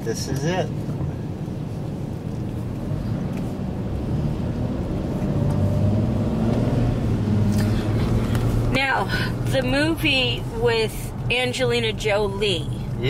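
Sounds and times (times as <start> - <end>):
car engine: 0.0 - 13.0
road noise inside car: 0.0 - 13.0.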